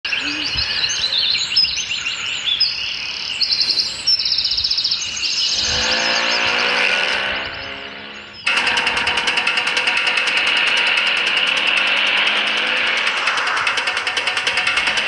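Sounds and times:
birds chirping and trilling: 0.0 - 15.0
small engine running: 5.1 - 15.0.

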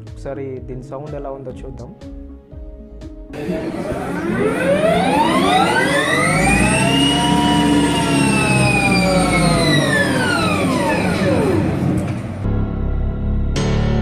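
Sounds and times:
electric motorcycle motor whining: 3.4 - 12.4.

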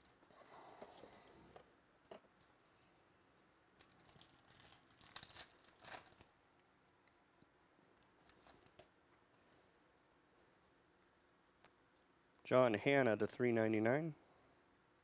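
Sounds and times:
foil wrapper tearing and crinkling: 3.8 - 6.3, 8.2 - 8.9.

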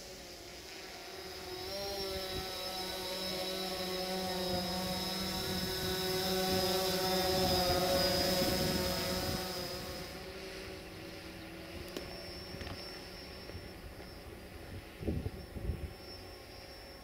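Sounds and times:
drone propellers whirring: 0.0 - 17.0.

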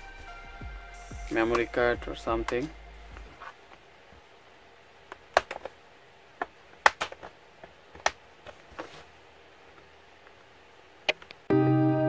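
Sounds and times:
plastic case clicks and snaps: 5.1 - 5.7, 6.8 - 7.3.

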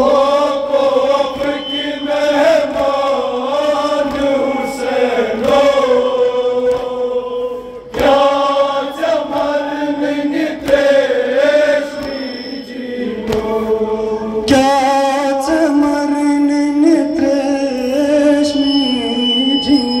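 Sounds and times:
men chanting a lament: 0.0 - 18.6.

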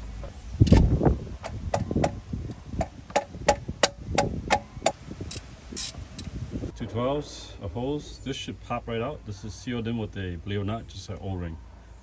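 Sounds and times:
metal knocks: 1.4 - 5.0.

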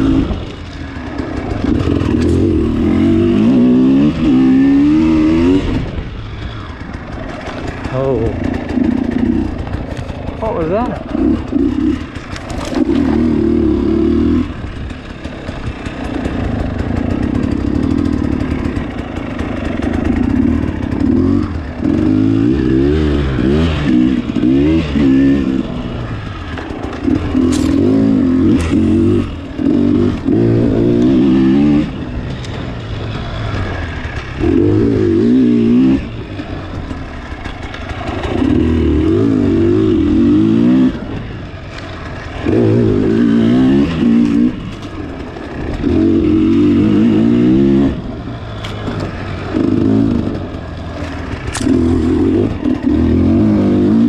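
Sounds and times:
dirt bike engine revving: 0.0 - 54.0
sharp clacks: 48.6 - 52.8.

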